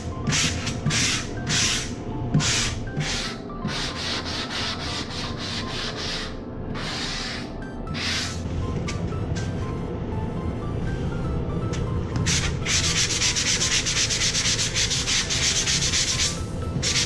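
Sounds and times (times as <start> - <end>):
sanding sponge scratching drywall: 0.3 - 8.4, 12.3 - 17.0.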